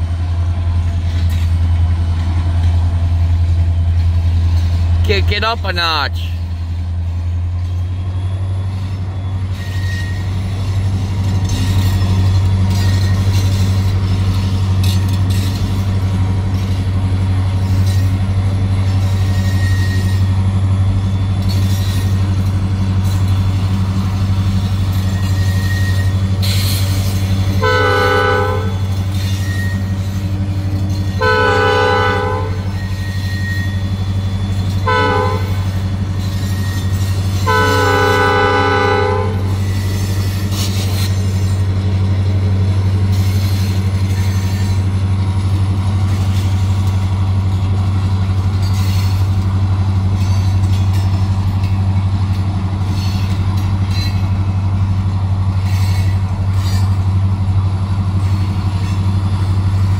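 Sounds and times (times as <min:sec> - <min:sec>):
freight train rumbling: 0:00.0 - 0:59.9
locomotive air horn blasts: 0:27.5 - 0:29.0, 0:31.1 - 0:32.9, 0:34.7 - 0:35.8, 0:37.4 - 0:39.7.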